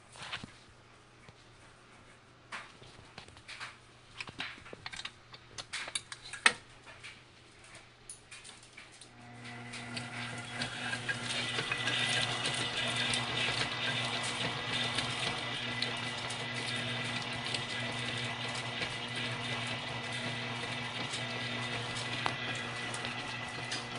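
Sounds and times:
stand mixer motor whirring: 9.1 - 23.9.

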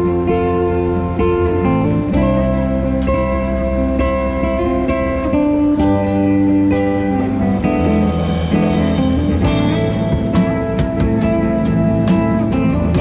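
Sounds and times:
electric guitar notes: 0.0 - 13.0
drum kit beat: 1.2 - 13.0
cymbal wash: 6.8 - 10.7.

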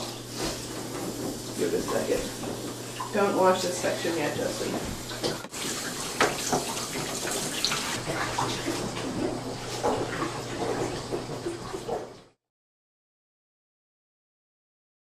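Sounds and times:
small knocks and splashes: 0.0 - 3.3, 4.0 - 12.3
water running: 0.0 - 12.4.

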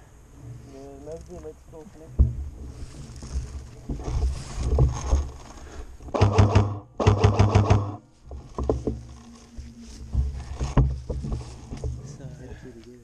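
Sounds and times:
feet rustling through long grass: 0.1 - 6.0, 8.0 - 13.0
airsoft gun rapid clicking: 6.1 - 8.0.

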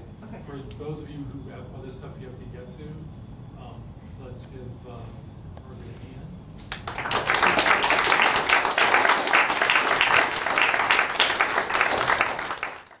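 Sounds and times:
audience applauding: 6.7 - 13.0.

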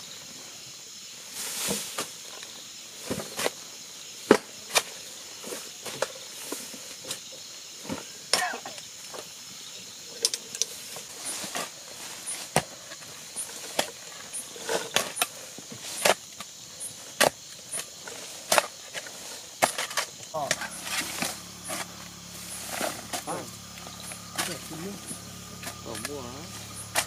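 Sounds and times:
hand tool digging into ground: 10.2 - 27.0
faint high-pitched chirring: 19.2 - 27.0.

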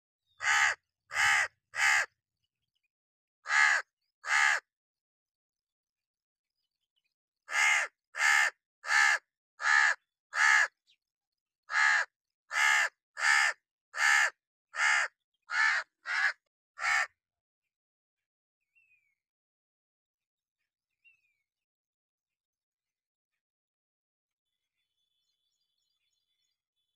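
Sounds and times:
crow cawing: 0.4 - 2.1, 3.4 - 4.7, 7.5 - 10.8, 11.7 - 17.2.

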